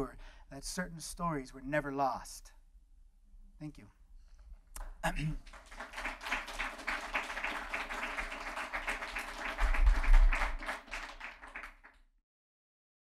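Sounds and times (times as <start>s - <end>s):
audience applauding: 4.8s - 12.1s.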